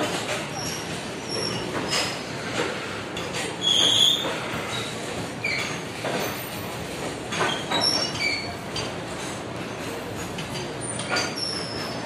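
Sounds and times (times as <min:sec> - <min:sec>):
freight wagons rolling on rails: 0:00.0 - 0:12.0
high-pitched wheel squeals: 0:03.6 - 0:05.8.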